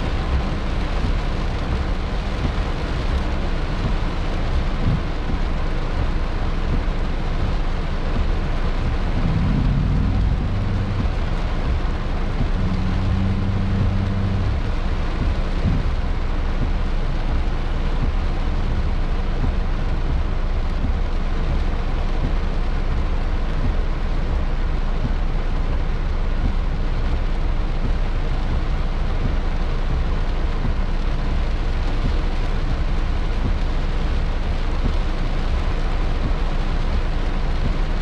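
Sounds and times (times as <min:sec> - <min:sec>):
heavy rain on a car: 0:00.0 - 0:38.0
low engine-like hum: 0:00.0 - 0:38.0.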